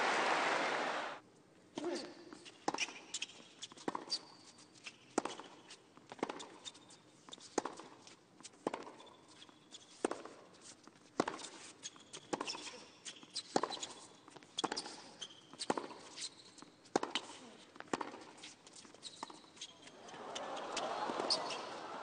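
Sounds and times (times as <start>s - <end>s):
shoe squeaks: 1.9s - 21.8s
tennis ball hitting rackets: 8.6s - 9.1s, 15.6s - 16.0s, 16.9s - 18.5s.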